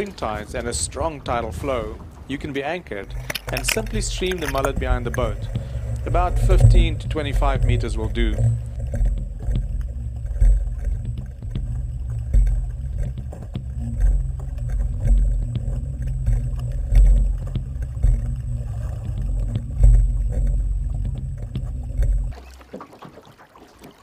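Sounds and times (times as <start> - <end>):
water rumbling against camera housing: 0.0 - 24.0
small clicks and knocks: 3.1 - 5.7.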